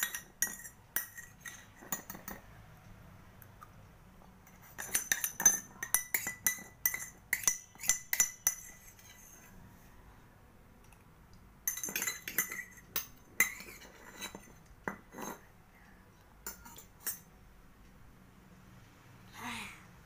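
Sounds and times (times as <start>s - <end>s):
metal spoon scraping steel bowl: 0.0s - 2.4s, 4.5s - 9.5s, 11.7s - 15.4s.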